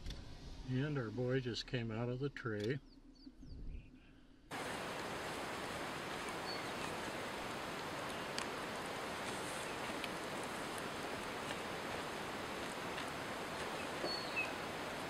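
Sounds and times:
faint low rumble: 0.0 - 5.1
steady outdoor hiss: 3.8 - 15.0
faint ticks: 7.7 - 8.6, 9.2 - 12.0.

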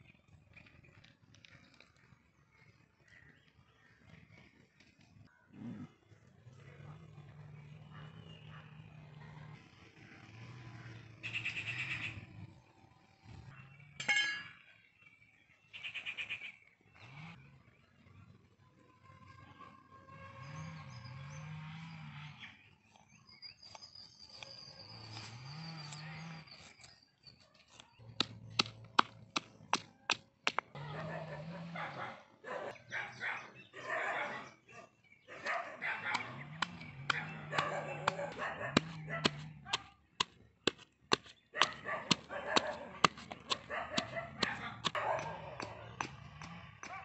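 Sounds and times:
animal calls: 30.6 - 40.3, 41.1 - 47.0
pestle pounding in stone mortar: 36.6 - 45.0.

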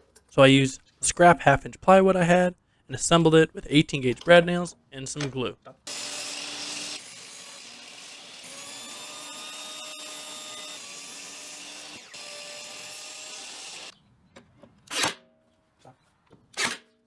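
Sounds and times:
table saw cutting wood: 5.9 - 13.9.

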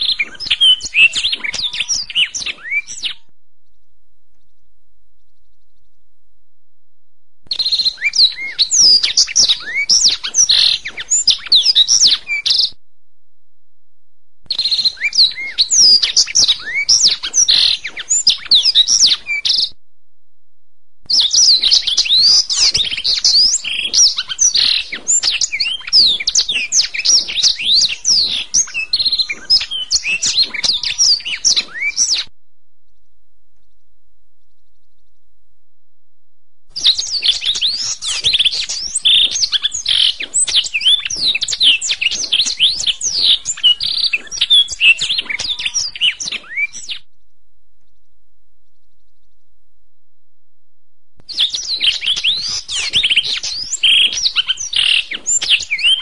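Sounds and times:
canary singing: 0.0 - 3.3, 7.5 - 12.8, 14.5 - 19.8, 21.1 - 32.3, 36.8 - 47.1, 51.2 - 56.0.

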